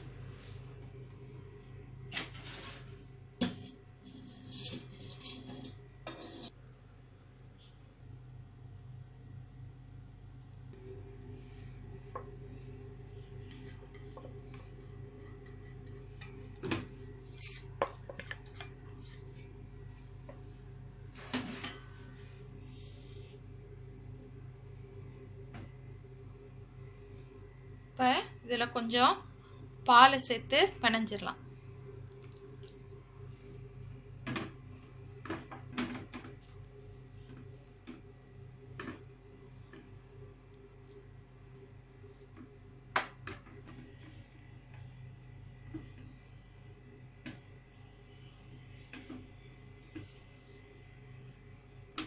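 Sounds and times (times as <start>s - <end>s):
steady low hum: 0.0s - 52.0s
knocks and scrapes against bowl: 3.4s - 6.6s, 13.5s - 19.4s.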